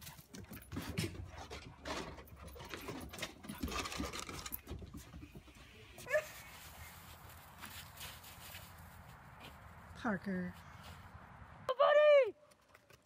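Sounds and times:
dog claws scraping wooden deck: 0.3 - 5.4.

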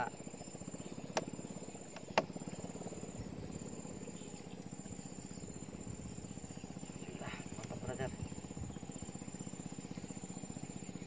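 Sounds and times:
insects calling in fast pulse: 0.0 - 11.0
sharp click: 1.1 - 1.3.

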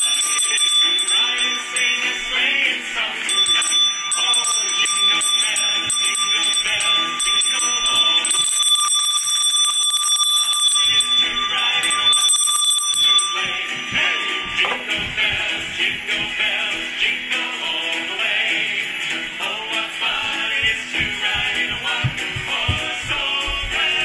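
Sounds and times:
handbell ringing: 0.0 - 15.7.

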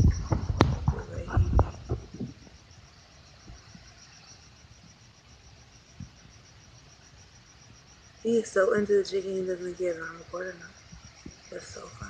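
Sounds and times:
soft low bump: 0.0 - 2.6
cricket chirping: 0.0 - 12.0.

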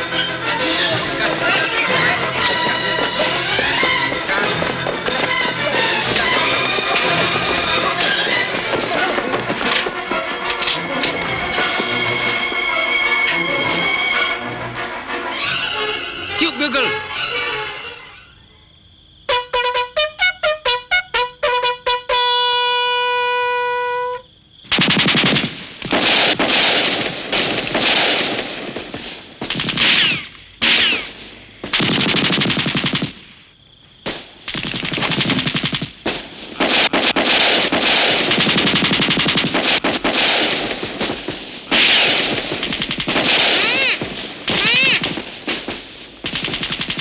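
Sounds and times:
bugle call: 0.0 - 18.1, 19.3 - 24.3, 43.5 - 45.2
machine-gun bursts: 24.7 - 33.2, 34.5 - 36.0, 36.6 - 47.0
rifle shots: 24.7 - 33.3, 34.1 - 47.0.

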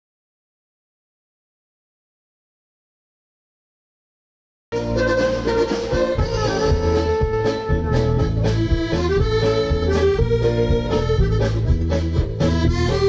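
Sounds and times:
accordion melody: 4.7 - 13.0
bass line: 4.7 - 13.0
drums keeping a steady beat: 4.7 - 13.0.

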